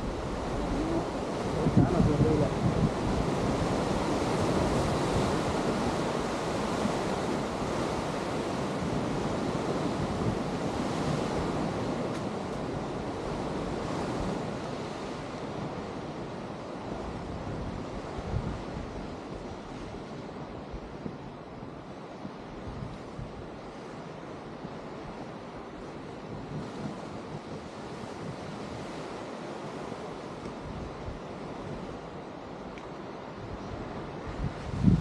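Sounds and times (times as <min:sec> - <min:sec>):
ocean surf breaking: 0:00.0 - 0:20.8
wind buffeting microphone: 0:00.0 - 0:23.9, 0:33.3 - 0:35.0.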